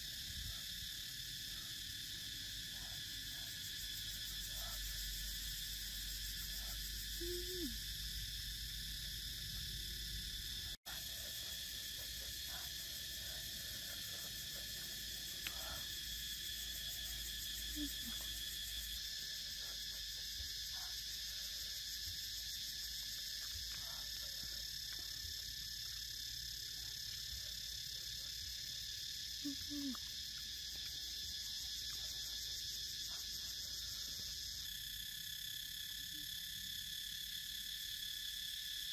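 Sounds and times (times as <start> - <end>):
low hoot-like animal call: 7.2 - 7.9.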